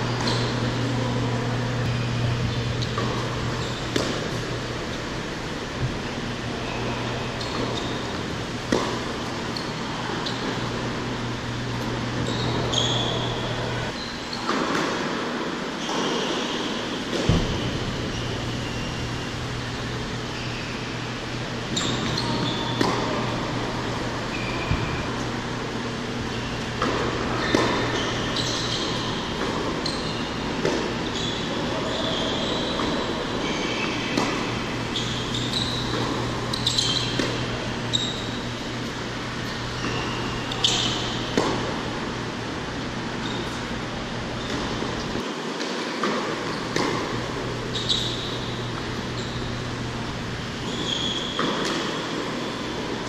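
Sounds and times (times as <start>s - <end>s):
shoes squeaking on court: 0.0s - 15.2s, 15.8s - 41.9s, 42.8s - 53.0s
low hum of hall: 0.0s - 53.0s
racquet striking tennis ball: 1.9s - 4.7s, 7.4s - 9.3s, 26.7s - 31.0s, 33.7s - 37.4s, 40.6s - 41.8s, 50.8s - 52.2s
tennis ball bouncing: 1.9s - 4.7s, 7.4s - 9.7s, 21.9s - 23.3s, 26.7s - 30.0s, 30.6s - 31.0s, 33.9s - 37.4s, 40.6s - 41.8s, 51.2s - 52.2s.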